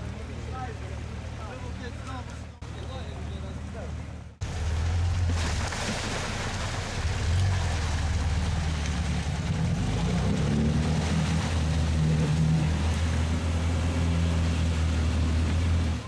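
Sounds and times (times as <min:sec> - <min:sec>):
off-road vehicle engine under load: 0:04.2 - 0:16.0
water sloshing and splashing: 0:04.4 - 0:16.0.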